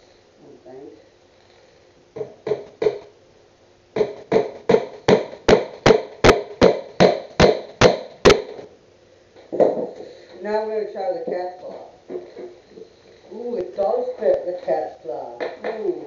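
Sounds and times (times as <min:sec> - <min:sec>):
hammer striking nail into wood: 0:02.2 - 0:03.1, 0:04.0 - 0:08.6.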